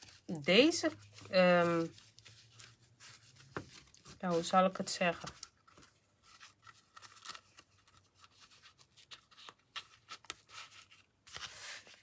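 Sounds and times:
cardstock scraping and tapping: 2.6 - 4.4.

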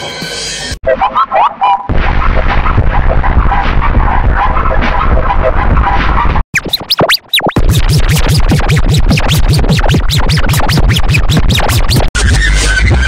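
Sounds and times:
electronic music: 0.8 - 13.0
sharp clicks over pulsing bass: 1.9 - 12.1.

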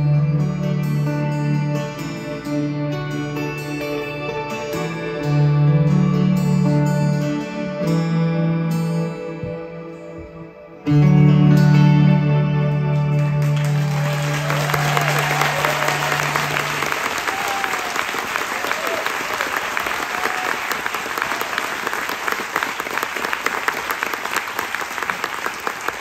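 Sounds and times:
audience applauding: 13.4 - 26.0
audience whooping: 13.5 - 26.0.

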